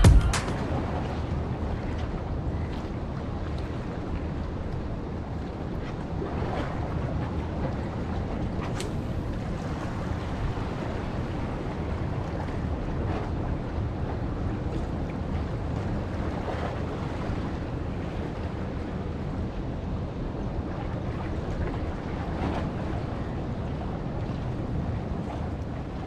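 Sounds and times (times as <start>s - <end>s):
waves washing against rocks: 0.0s - 1.0s.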